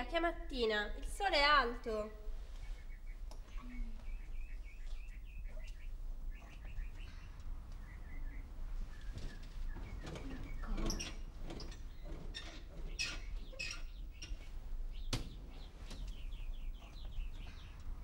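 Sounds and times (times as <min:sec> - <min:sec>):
small birds chirping: 0:00.6 - 0:18.0
rustling and soft knocks: 0:08.6 - 0:17.6.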